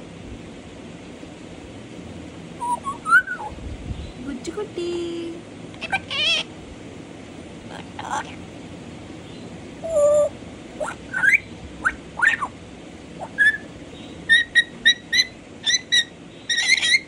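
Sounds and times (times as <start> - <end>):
parrot chirps: 2.6 - 3.6, 5.8 - 6.5, 9.3 - 12.6, 13.2 - 17.0
parrot whistling: 2.6 - 3.6, 9.8 - 12.5, 13.2 - 13.7, 14.3 - 17.0.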